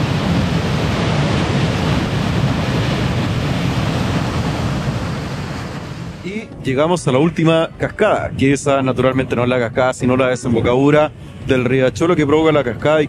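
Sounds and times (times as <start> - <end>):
waterfall rushing: 0.0 - 6.5.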